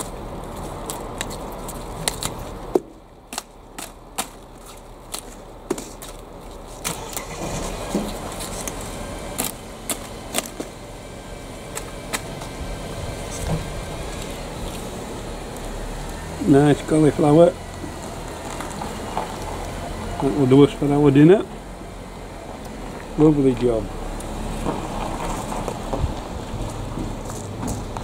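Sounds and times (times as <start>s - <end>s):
leaf stalks snapping: 0.0s - 10.8s, 11.7s - 12.6s
low background noise: 0.0s - 28.0s.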